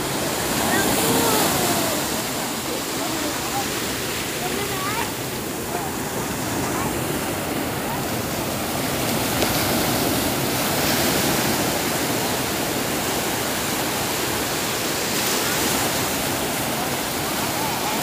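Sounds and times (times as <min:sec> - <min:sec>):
small waves washing on sand: 0:00.0 - 0:18.0.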